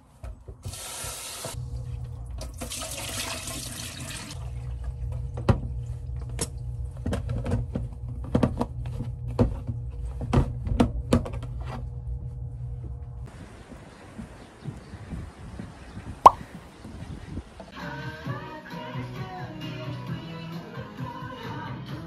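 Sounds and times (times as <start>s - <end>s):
kitchen tap running: 0.6s - 1.6s, 2.4s - 4.6s.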